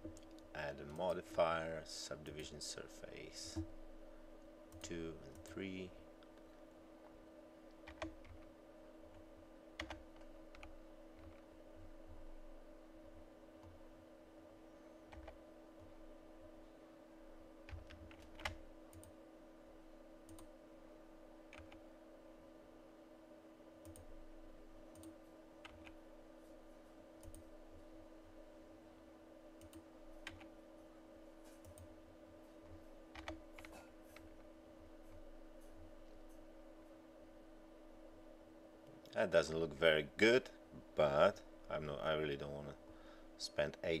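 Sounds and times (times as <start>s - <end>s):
faint steady hum: 0.0s - 44.0s
computer keyboard and mouse clicks: 7.8s - 8.5s, 9.8s - 11.4s, 15.1s - 15.4s, 17.7s - 19.2s, 21.5s - 21.8s, 24.9s - 26.0s, 29.6s - 30.5s, 33.2s - 34.3s.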